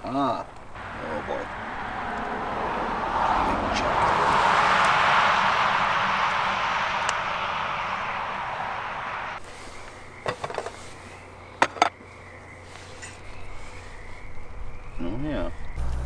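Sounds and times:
car passing: 0.7s - 10.2s.

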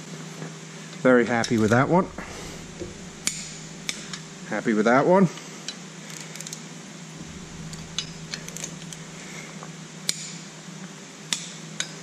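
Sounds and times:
low steady hum: 1.3s - 5.2s, 7.1s - 10.1s.

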